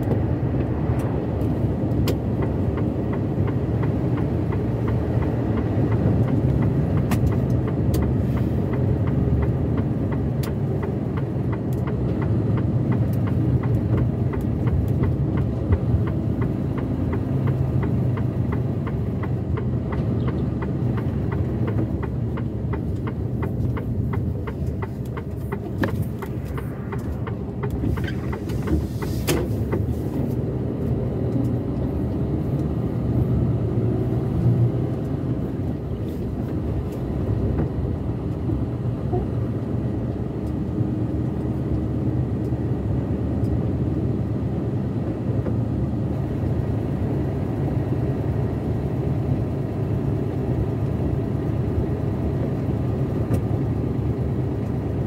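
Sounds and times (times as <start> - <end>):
truck engine hum: 0.0 - 55.0
tyre and road noise: 0.0 - 55.0
light ticking: 1.0 - 29.9.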